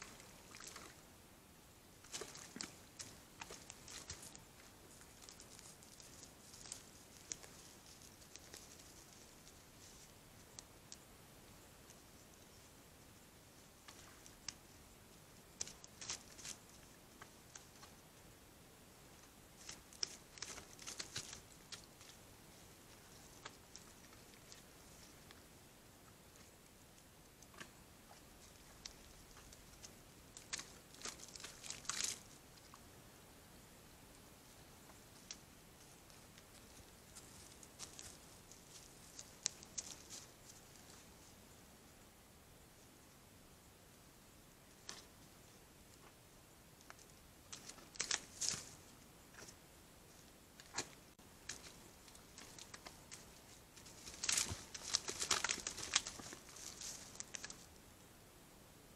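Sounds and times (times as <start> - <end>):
twigs and leaf litter crunching: 0.0 - 1.1, 2.0 - 11.0, 15.4 - 18.0, 19.1 - 25.4, 27.4 - 32.8, 34.9 - 41.3, 46.8 - 57.8.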